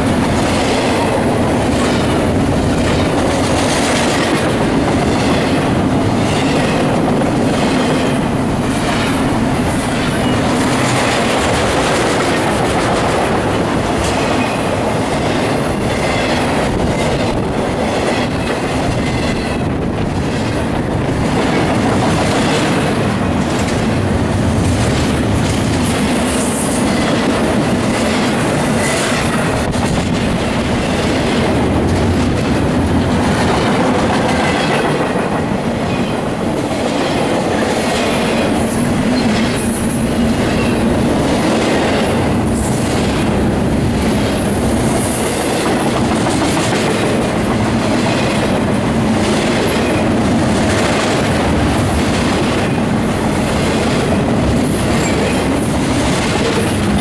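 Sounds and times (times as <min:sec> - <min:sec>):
steel wheels on rails: 0:00.0 - 0:57.0
wheels clacking over rail joints: 0:00.0 - 0:57.0.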